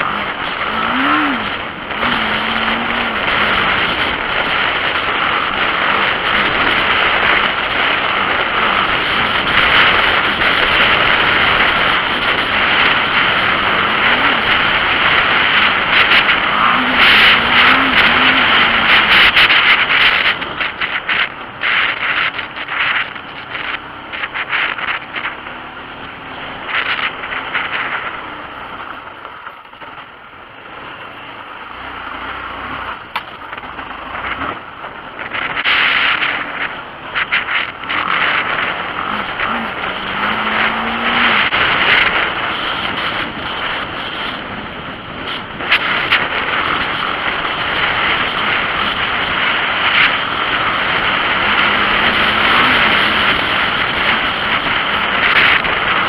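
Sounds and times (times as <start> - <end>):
motorcycle engine revving: 0.0 - 56.0
wind buffeting microphone: 0.0 - 56.0.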